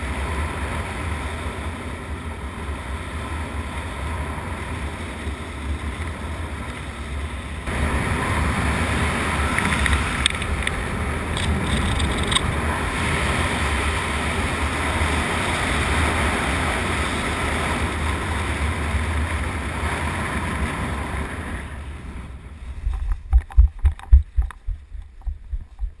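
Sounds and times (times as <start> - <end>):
wind rushing over microphone: 0.0 - 26.0
irregular low thumps: 22.8 - 26.0.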